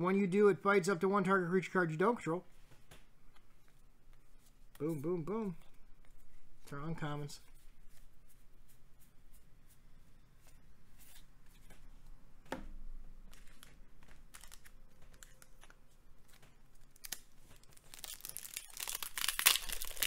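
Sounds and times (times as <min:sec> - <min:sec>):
foil wrapper crinkling and tearing: 0:16.7 - 0:20.0.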